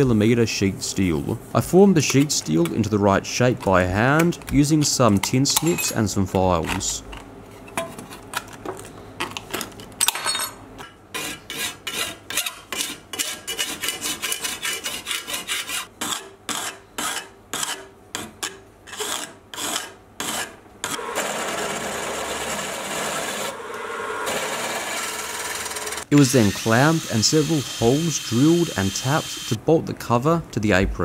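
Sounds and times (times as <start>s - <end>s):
hand file rasping on steel: 11.1s - 20.6s
drill boring through steel: 20.9s - 29.6s.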